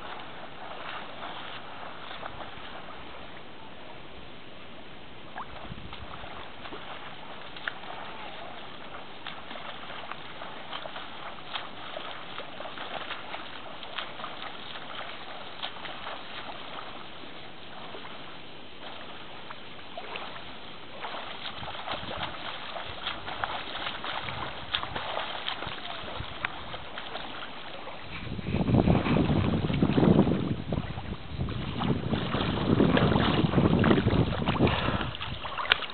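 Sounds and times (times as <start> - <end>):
water lapping and splashing: 0.0 - 3.9, 5.2 - 35.9
wind buffeting microphone: 5.4 - 17.1, 20.9 - 35.9.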